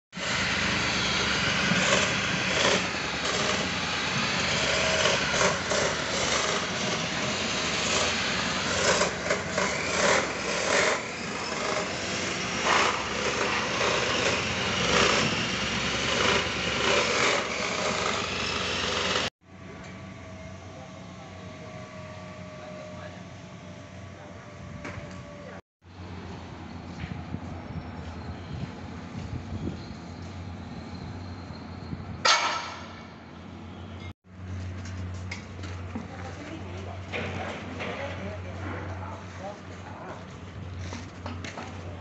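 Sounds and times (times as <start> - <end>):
cut-off saw grinding steel: 0.2 - 19.3.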